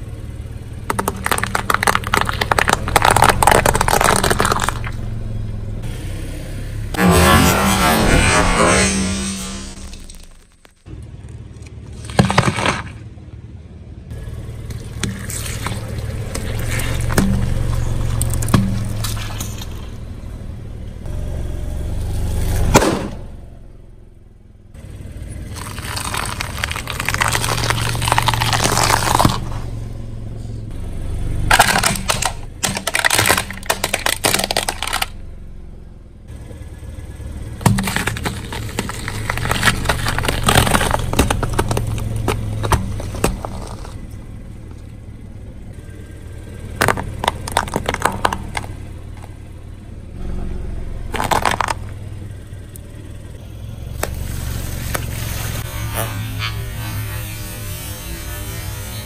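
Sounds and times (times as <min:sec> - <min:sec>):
tyre crushing vegetables: 0:00.9 - 0:05.0, 0:11.9 - 0:13.0, 0:25.5 - 0:29.8, 0:31.5 - 0:35.1, 0:37.6 - 0:44.1, 0:46.8 - 0:49.4, 0:51.1 - 0:52.0
steady low hum: 0:23.1 - 0:59.0.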